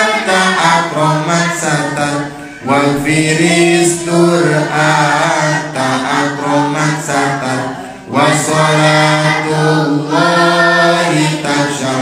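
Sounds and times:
voices singing devotional song: 0.0s - 12.0s.

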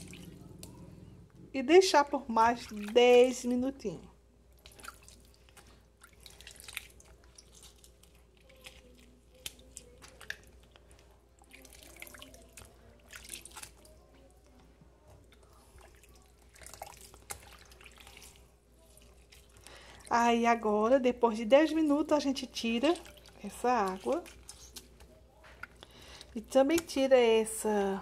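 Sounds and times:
water dripping and splashing: 0.0s - 0.8s, 2.4s - 3.6s, 4.6s - 14.0s, 15.3s - 20.1s, 21.7s - 27.0s.

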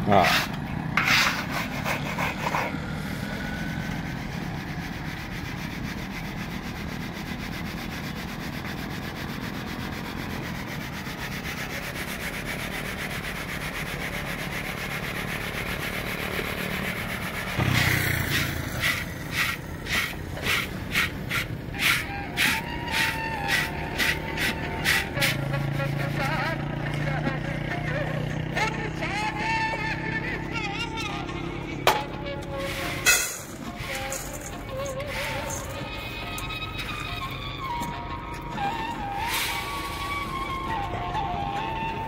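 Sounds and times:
scraping strokes on metal pan: 0.1s - 2.8s, 3.6s - 26.4s, 32.5s - 36.8s
grainy rustling of sieved chickpeas: 32.6s - 35.8s
chickpeas rattling on a plate: 33.0s - 35.8s.

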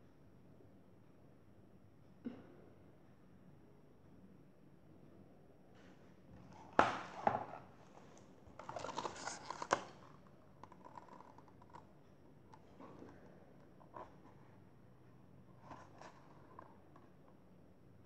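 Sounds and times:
pages rustling: 6.6s - 11.9s, 15.6s - 16.9s
knock on book: 6.8s - 7.5s.

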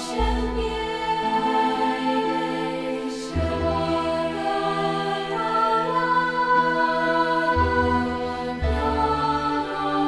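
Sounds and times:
music of long held chords: 0.0s - 10.0s.

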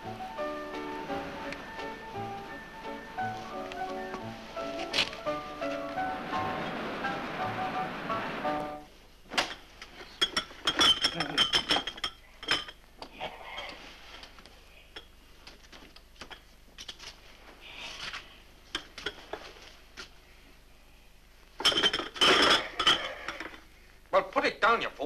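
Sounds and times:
plates and cutlery clinking: 9.4s - 12.8s, 21.6s - 23.6s.

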